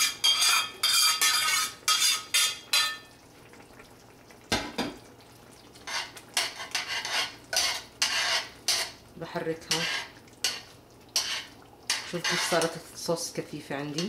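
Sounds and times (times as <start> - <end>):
metal spoon clinking on pans: 0.0 - 3.1, 5.9 - 8.9, 9.7 - 12.8
spoon stirring thick stew: 5.8 - 12.9.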